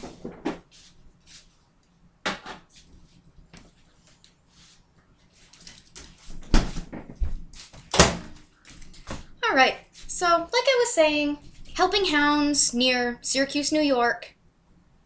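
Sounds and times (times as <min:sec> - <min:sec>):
light kitchen knocks and clatters: 0:00.0 - 0:00.7, 0:06.3 - 0:08.4.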